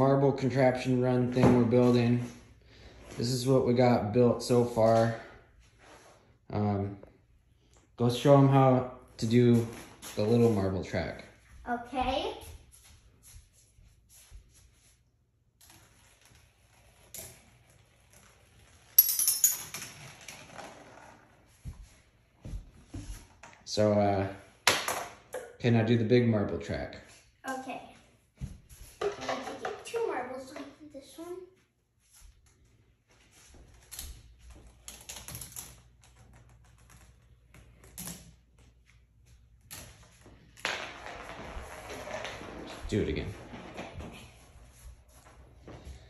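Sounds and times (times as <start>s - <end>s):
marble rattling down plastic track: 40.6s - 44.0s.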